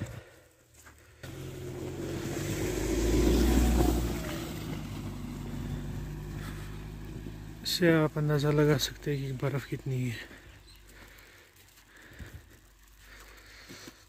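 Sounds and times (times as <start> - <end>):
car engine driving through snow: 1.2 - 12.2.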